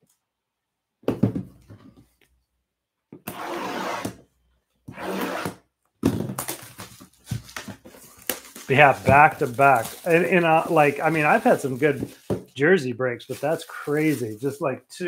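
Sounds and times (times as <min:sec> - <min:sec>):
box knocking on table: 0:01.0 - 0:01.5
shrink-wrapped box rasping: 0:06.4 - 0:12.5, 0:13.3 - 0:14.4.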